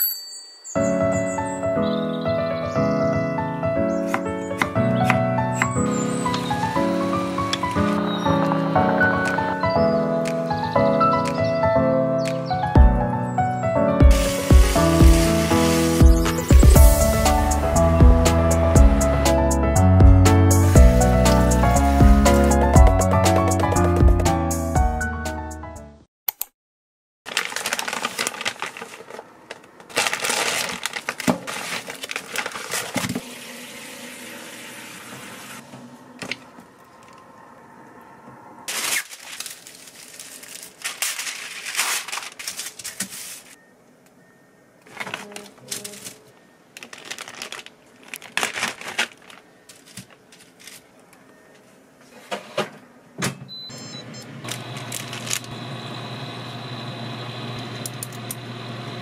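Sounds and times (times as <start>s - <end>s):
plastic packaging rustling: 14.1s - 16.6s, 27.3s - 33.2s, 38.7s - 43.6s, 44.8s - 51.2s, 54.9s - 55.4s
hands handling food: 27.3s - 33.1s, 44.8s - 51.3s
appliance hum: 53.5s - 59.0s.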